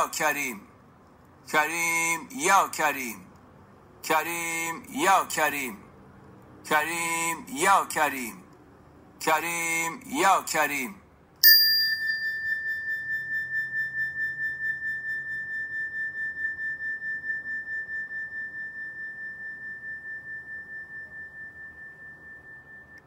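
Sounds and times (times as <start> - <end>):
bell-like metal tone ringing: 11.4 - 23.0.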